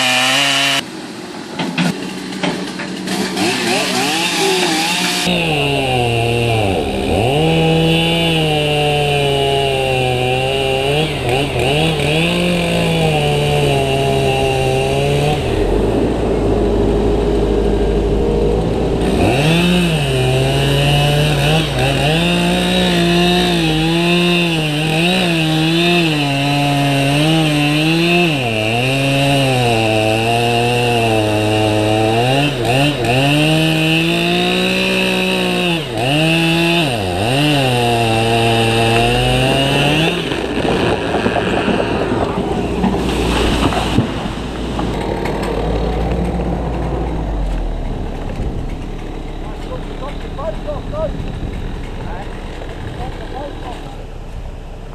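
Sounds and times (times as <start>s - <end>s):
chainsaw cutting wood: 0.0s - 0.9s, 1.6s - 54.9s
low mechanical drone: 10.0s - 24.0s, 36.8s - 54.9s.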